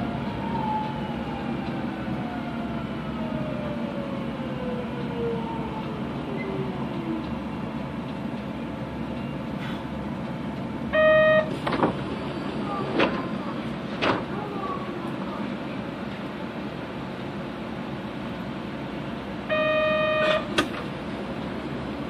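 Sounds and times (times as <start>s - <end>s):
train running noise: 0.0s - 22.0s
short loud beep: 11.0s - 11.5s, 19.5s - 20.5s.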